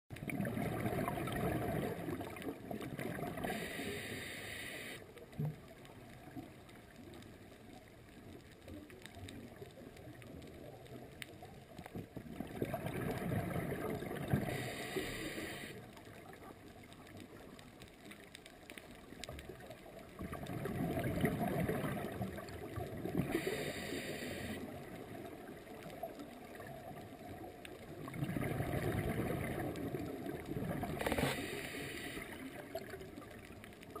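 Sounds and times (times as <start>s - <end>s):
exhaled bubbles rushing: 0.1s - 3.6s, 12.3s - 14.6s, 20.2s - 23.4s, 27.9s - 31.6s
regulator inhale hiss: 3.4s - 5.1s, 14.4s - 15.9s, 23.3s - 24.8s, 31.0s - 32.5s.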